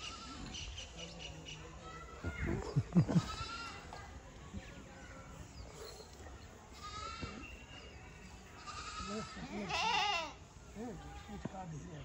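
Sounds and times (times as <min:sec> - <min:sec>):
goat bleating: 0:03.2 - 0:03.8, 0:06.8 - 0:07.3, 0:08.6 - 0:10.4.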